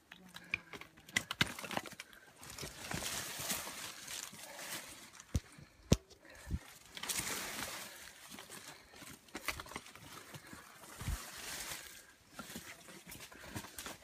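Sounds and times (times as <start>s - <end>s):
leaves and twigs crackling: 0.0s - 14.0s.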